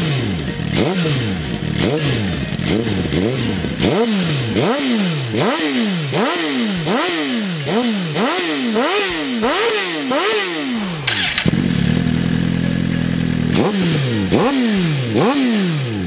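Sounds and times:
motorcycle engine revving: 0.0 - 16.0.

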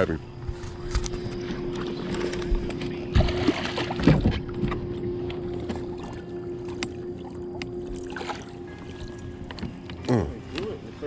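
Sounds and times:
electric hum: 0.0 - 11.0
fish splashing and bumping: 3.1 - 4.9.

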